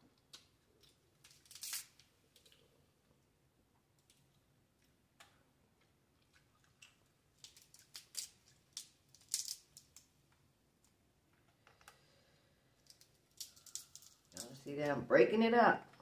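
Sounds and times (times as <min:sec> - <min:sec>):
crab shell cracking: 0:00.3 - 0:02.7, 0:04.0 - 0:10.2, 0:12.8 - 0:14.5.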